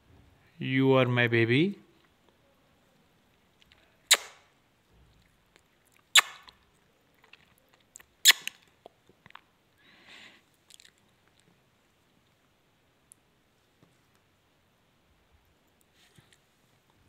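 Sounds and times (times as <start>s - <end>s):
loud sharp clicks: 4.1s - 4.4s
soft rustle: 10.4s - 14.5s, 15.1s - 17.0s.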